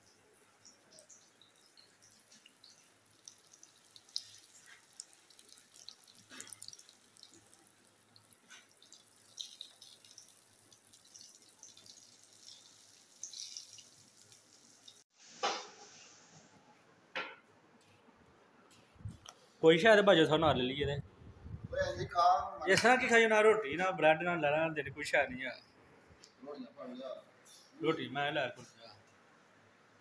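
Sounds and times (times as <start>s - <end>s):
hot oil sizzling and crackling: 0.0s - 16.2s.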